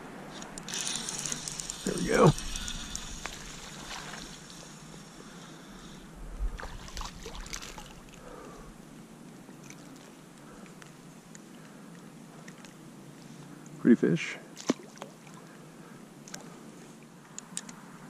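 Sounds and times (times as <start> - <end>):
fish splashing at water surface: 6.6 - 8.1.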